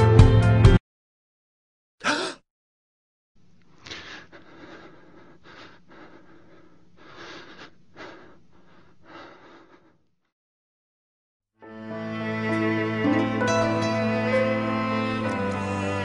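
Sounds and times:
person breathing heavily: 0:02.0 - 0:02.4, 0:03.8 - 0:10.1.

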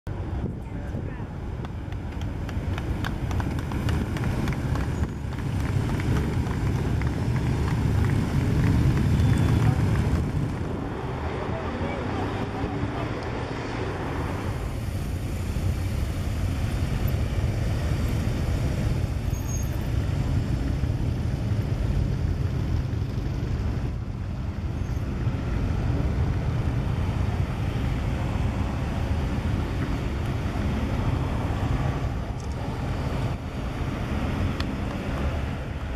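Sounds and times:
cars passing close by: 0:00.1 - 0:35.9
wind rumbling on microphone: 0:00.1 - 0:35.9
people clapping: 0:01.6 - 0:10.7
motorcycles rumbling past: 0:02.8 - 0:17.9.

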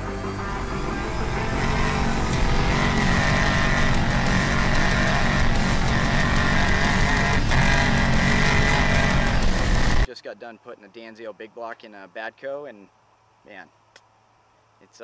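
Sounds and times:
steady high whine: 0:00.0 - 0:10.1
truck engine running: 0:00.0 - 0:10.1.

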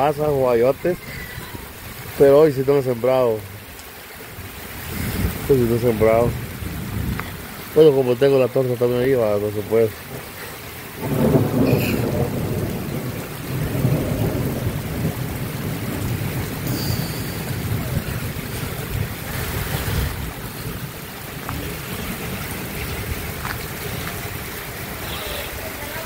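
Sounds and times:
steady rain: 0:00.0 - 0:26.0
rolling thunder rumble: 0:04.7 - 0:07.8, 0:09.1 - 0:25.0.

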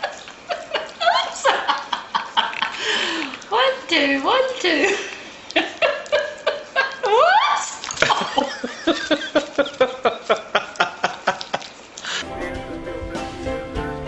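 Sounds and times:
puppy lapping and slurping: 0:00.2 - 0:06.8.

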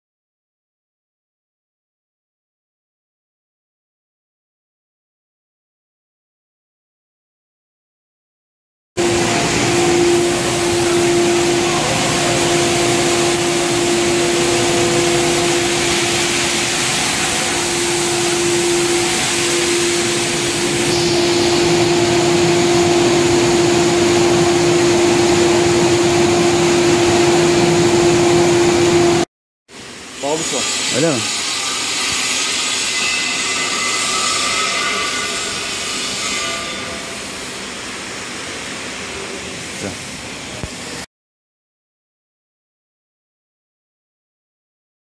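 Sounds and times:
motor hum: 0:09.0 - 0:29.2.

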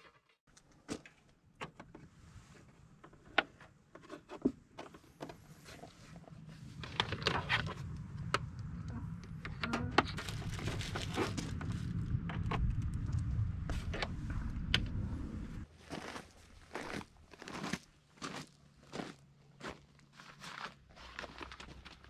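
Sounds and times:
low steady rumble: 0:05.0 - 0:17.4.

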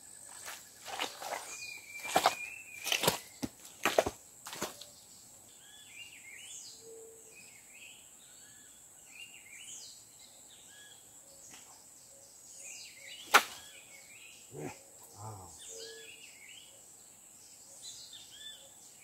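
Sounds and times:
faint bird chirping: 0:04.6 - 0:19.0.

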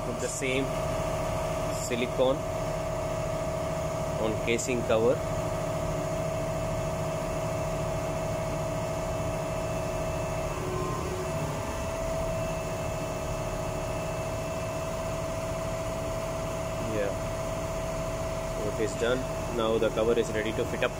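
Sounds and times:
ship engine room machinery drone: 0:00.0 - 0:20.9
held humming tone: 0:05.5 - 0:19.4.

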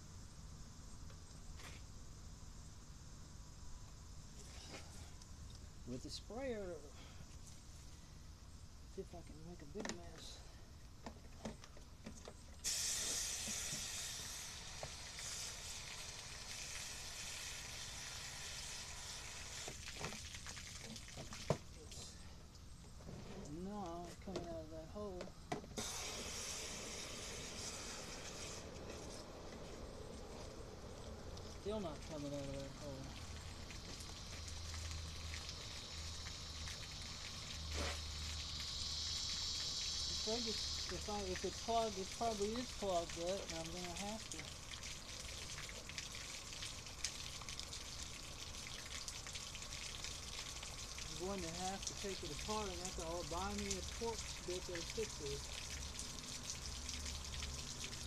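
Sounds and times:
hose nozzle spraying water: 0:12.6 - 0:22.2, 0:25.7 - 0:58.0.

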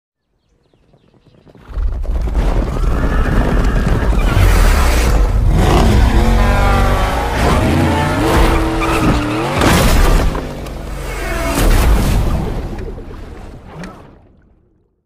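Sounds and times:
deep rumble: 0:01.6 - 0:13.1
car tyres screeching: 0:03.7 - 0:09.6.

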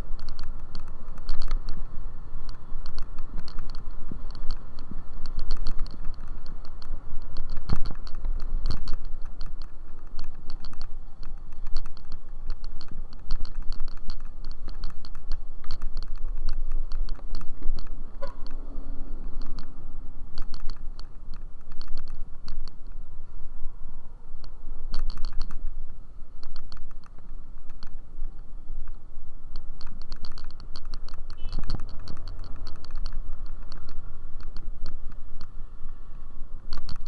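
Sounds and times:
rapid clicking and rattling: 0:00.0 - 0:18.6, 0:20.4 - 0:22.9, 0:24.9 - 0:25.6, 0:29.6 - 0:35.6, 0:36.6 - 0:37.0
wind rumbling on microphone: 0:00.0 - 0:37.0.

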